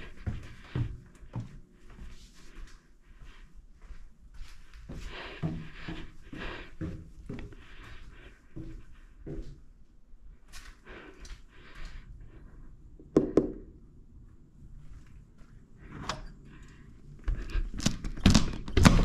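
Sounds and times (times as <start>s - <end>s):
knocks and thuds indoors: 17.8s - 19.0s.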